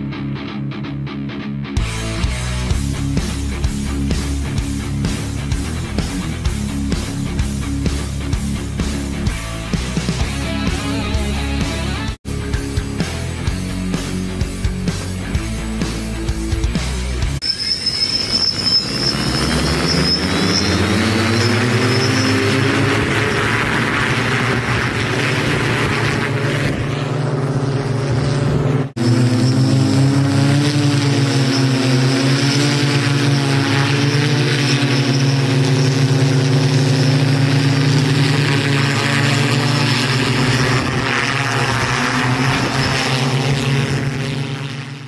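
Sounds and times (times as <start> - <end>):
hoverbike propellers whirring: 17.5 - 45.0.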